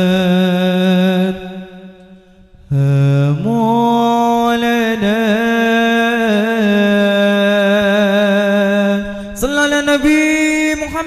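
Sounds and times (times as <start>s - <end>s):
person singing a long note: 2.6s - 11.0s.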